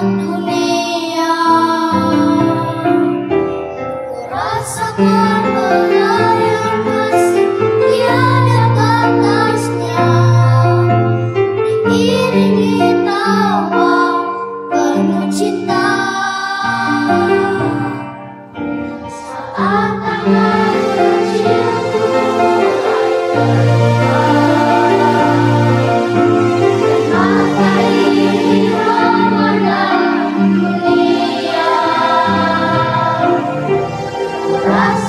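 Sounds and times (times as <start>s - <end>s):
piano accompaniment: 0.0s - 35.0s
boys singing into microphones: 27.0s - 33.5s.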